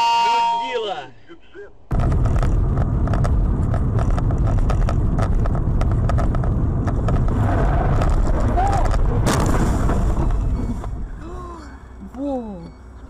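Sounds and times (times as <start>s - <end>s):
sharp clicks and rattles: 1.9s - 11.0s
tyre and engine rumble in car: 1.9s - 13.0s.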